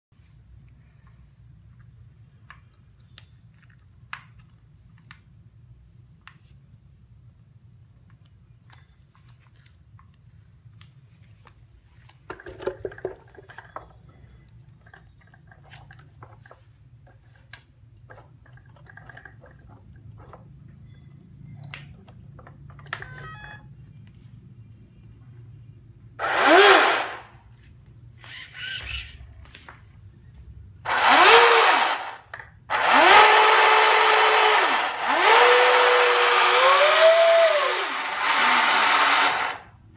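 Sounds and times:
electric motor revving in bursts: 0:26.2 - 0:27.3, 0:30.9 - 0:39.7.

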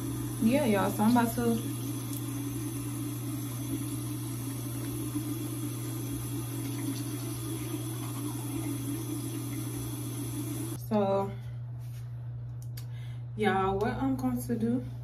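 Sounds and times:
electric toothbrush buzzing: 0:00.0 - 0:10.8.

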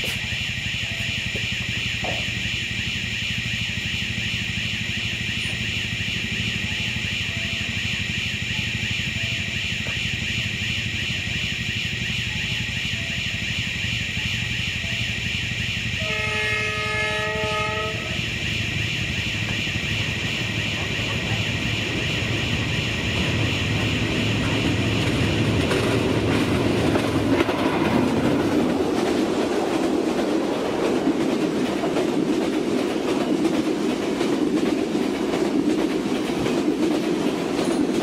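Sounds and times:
high-pitched drone: 0:00.0 - 0:27.1
locomotive engine rumble: 0:00.0 - 0:38.0
locomotive horn blast: 0:16.0 - 0:18.3.

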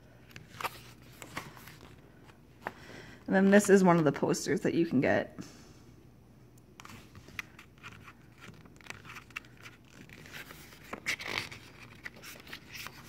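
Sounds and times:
page flips: 0:00.3 - 0:02.8, 0:06.8 - 0:13.0
paper rustling: 0:00.3 - 0:02.8, 0:06.8 - 0:13.0.

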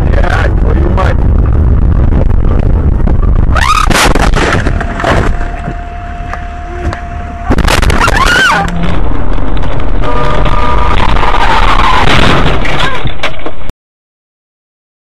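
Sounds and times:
steady tone: 0:00.0 - 0:12.8
loud road noise: 0:00.0 - 0:13.7
loud crash impact: 0:03.6 - 0:05.5, 0:07.5 - 0:13.5
windshield cracking: 0:03.6 - 0:05.8, 0:06.8 - 0:13.7.

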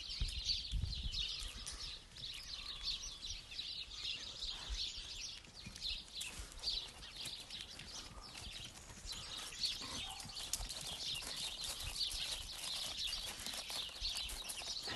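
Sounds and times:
small birds chirping: 0:00.0 - 0:14.9
footsteps on gravel: 0:10.1 - 0:14.9.

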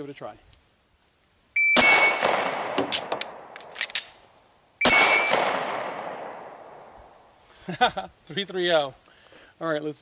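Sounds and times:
shot timer beep: 0:01.6 - 0:02.2, 0:04.8 - 0:05.4
gunshots with long echo: 0:01.8 - 0:03.8, 0:04.8 - 0:07.3
metallic clicks of magazine reload: 0:02.8 - 0:04.2.

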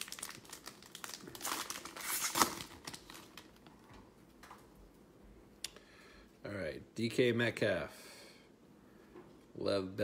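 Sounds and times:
foil wrapper tearing and crinkling: 0:00.0 - 0:03.6.

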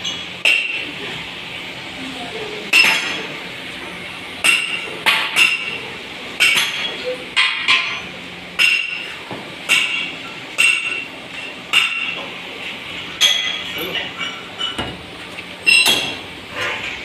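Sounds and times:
hammer striking metal: 0:00.0 - 0:00.8, 0:02.7 - 0:03.3, 0:04.4 - 0:05.8, 0:06.4 - 0:09.1, 0:09.7 - 0:12.3, 0:15.7 - 0:16.2.

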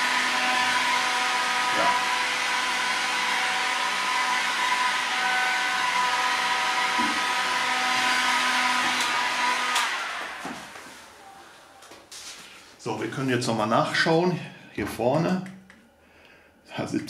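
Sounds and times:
heat gun blowing: 0:00.0 - 0:11.3.

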